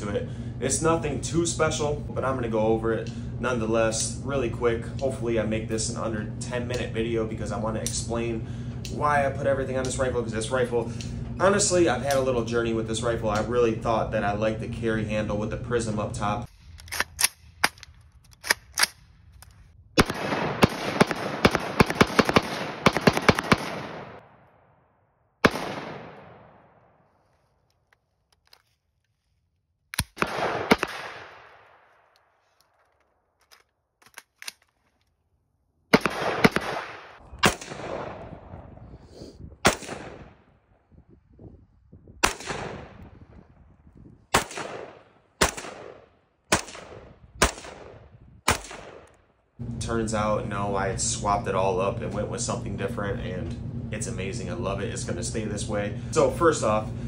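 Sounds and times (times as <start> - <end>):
rifle gunshots: 20.0 - 24.5, 25.4 - 27.0, 30.0 - 32.1, 35.9 - 38.6, 39.6 - 40.4, 42.2 - 43.1, 44.3 - 49.2.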